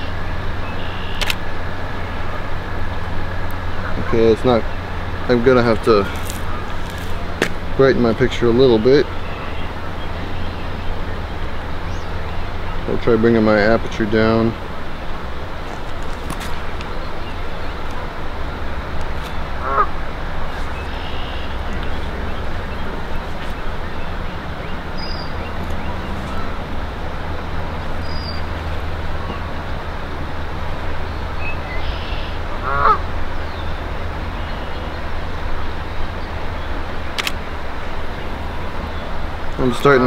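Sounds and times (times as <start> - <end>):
bird calls: 0.0 - 1.4, 3.5 - 13.1, 14.9 - 29.6, 31.0 - 35.1
low rumble and hiss: 0.0 - 40.0
sharp click: 1.1 - 1.4, 37.2 - 37.4.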